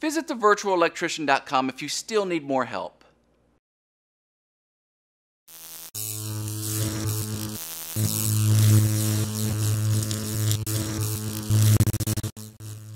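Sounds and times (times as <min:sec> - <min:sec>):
electrical hum and buzz: 0:05.5 - 0:12.9.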